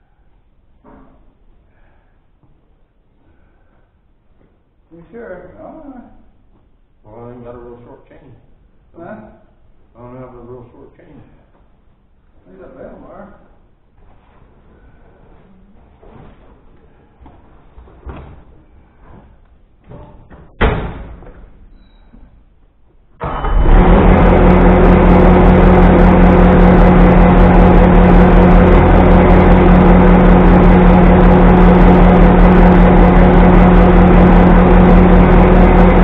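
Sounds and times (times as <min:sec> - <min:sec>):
machine motor running: 0:23.2 - 0:36.0.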